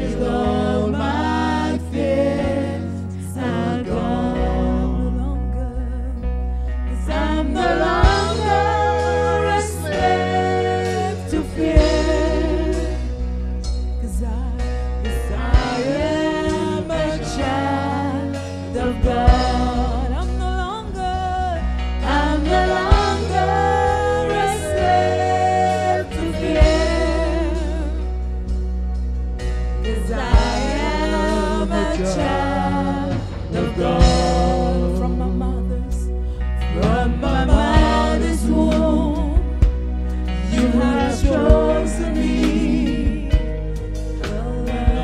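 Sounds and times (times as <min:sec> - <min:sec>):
bass line: 0:00.0 - 0:45.0.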